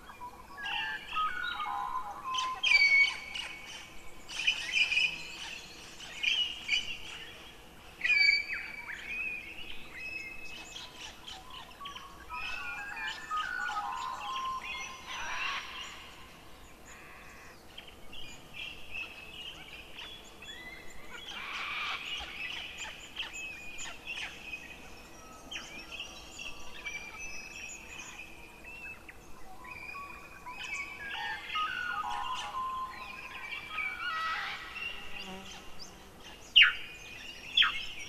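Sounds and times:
faint hiss: 2.4s - 38.0s
chorus of calling animals: 11.0s - 16.3s, 21.1s - 22.6s, 30.0s - 36.0s.

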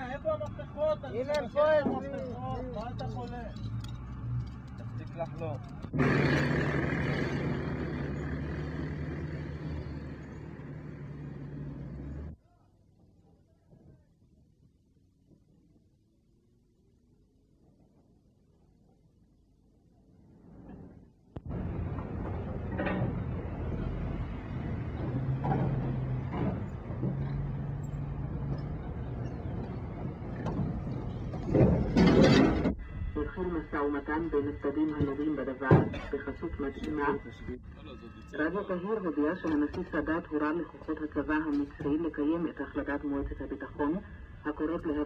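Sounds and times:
vehicle running gear noise: 0.0s - 12.4s, 21.4s - 33.0s
vehicle engine: 2.1s - 12.4s, 21.4s - 32.8s.

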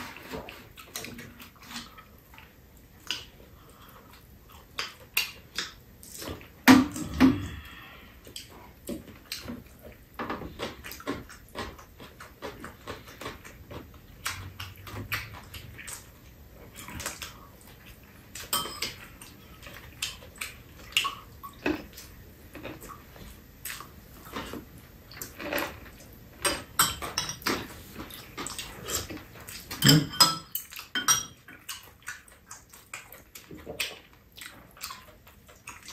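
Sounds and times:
chewing: 0.0s - 35.9s
utensils clinking on dishes: 18.4s - 19.1s, 26.4s - 27.7s, 29.7s - 31.6s.

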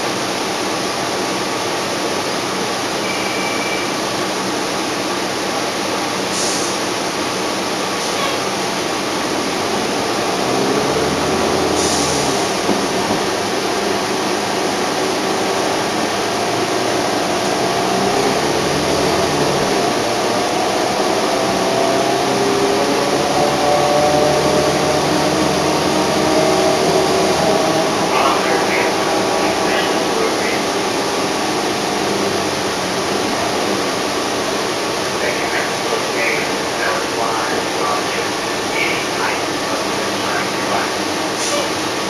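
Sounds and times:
bus engine droning: 0.0s - 42.0s
rising transmission whine: 9.0s - 35.9s.

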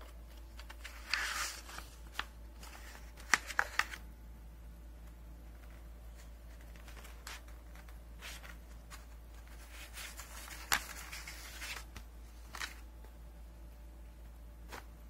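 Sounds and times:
paper rustling: 0.0s - 4.0s, 5.5s - 12.9s
steady low hum: 0.0s - 15.0s.

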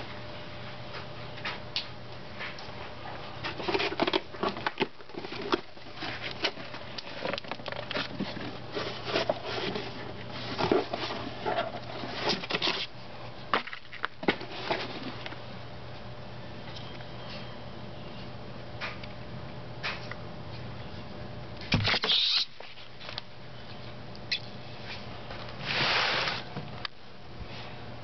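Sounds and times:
faint steady hum: 0.0s - 28.0s
rustling and scratching: 2.4s - 15.4s, 24.8s - 26.5s.

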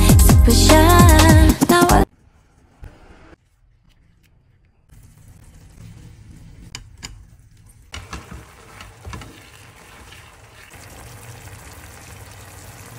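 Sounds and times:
pasta stirred in sizzling sauce: 8.0s - 12.9s.

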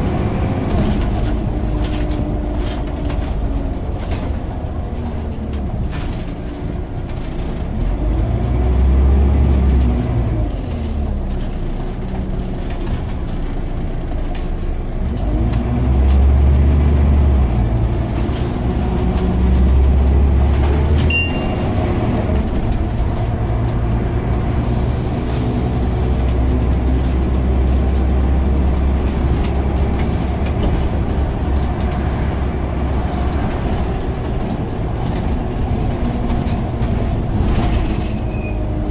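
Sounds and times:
bus diesel engine droning: 0.0s - 38.9s
short high-pitched ding: 21.1s - 21.8s.

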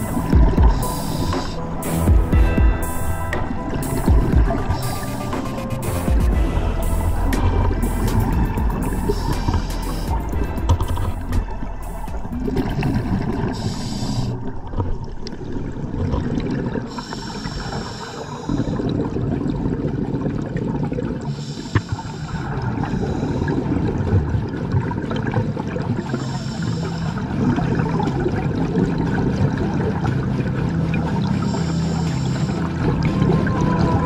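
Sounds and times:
exhaled bubbles gurgling: 0.0s - 34.0s
scuba regulator inhale hiss: 13.5s - 14.4s, 16.9s - 18.8s, 21.3s - 23.5s.

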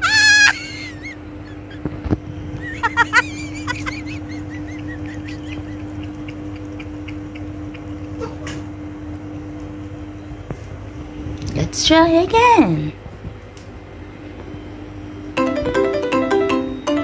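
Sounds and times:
high wavering animal calls: 0.0s - 1.8s
steady hum: 0.0s - 17.0s.

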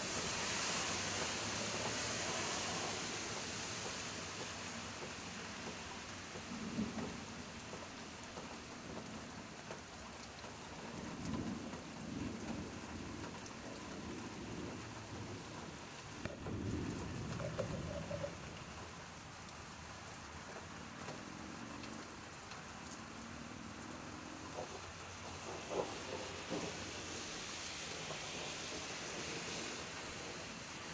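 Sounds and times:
rain hissing: 0.0s - 30.9s
thunder rolling: 16.3s - 18.7s, 24.6s - 27.0s.

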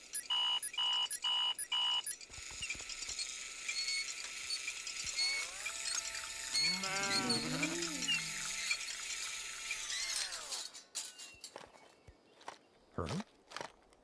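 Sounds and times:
cartoon sheep bleating: 6.6s - 8.6s
birdsong chirps: 11.1s - 13.0s.

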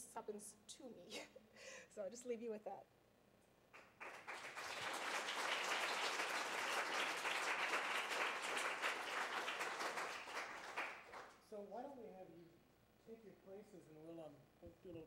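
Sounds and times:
audience applauding: 3.8s - 11.4s.

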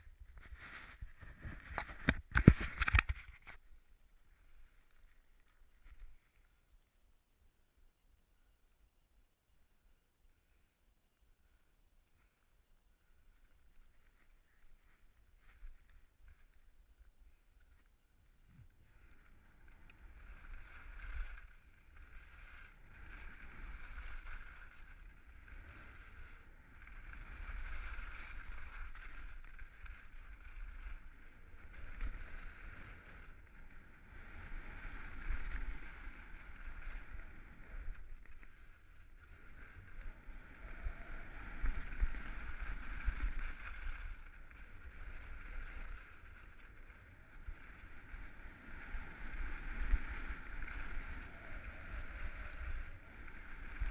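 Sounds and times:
skis scraping over snow: 0.1s - 3.6s, 18.5s - 53.9s.

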